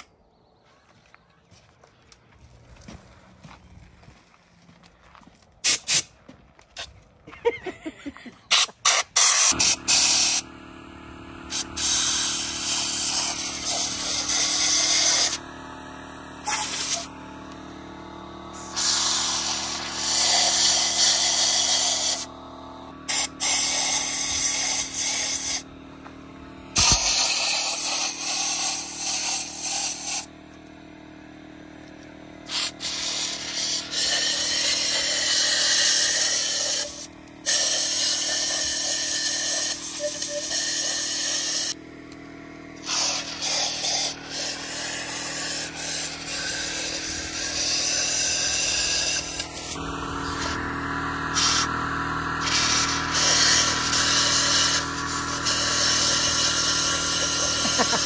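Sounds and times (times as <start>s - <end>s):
air compressor humming: 2.1s - 58.0s
air blow gun hissing: 5.6s - 6.1s, 8.5s - 10.5s, 11.4s - 25.7s, 26.7s - 30.3s, 32.4s - 41.8s, 42.8s - 58.0s.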